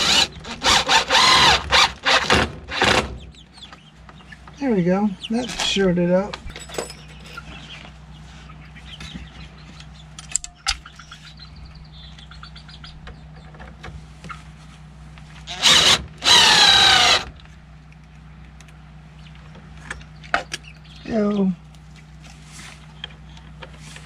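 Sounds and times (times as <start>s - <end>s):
cordless drill running: 0.0s - 2.8s, 15.5s - 17.3s.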